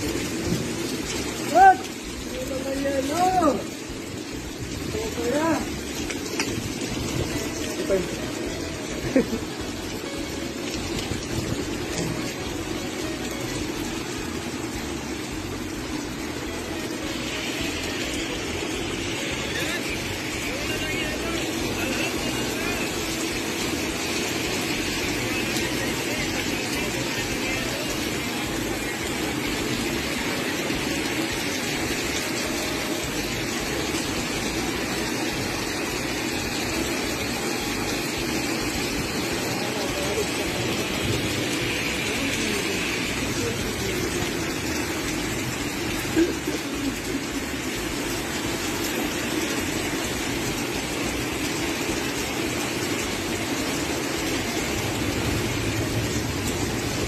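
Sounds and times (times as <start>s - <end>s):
hail and rain on pavement: 0.0s - 57.0s.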